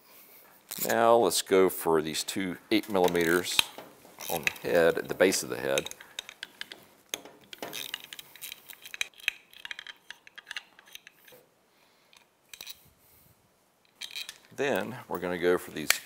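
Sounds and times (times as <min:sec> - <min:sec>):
hand tool clicking on metal bolts: 0:02.8 - 0:11.4.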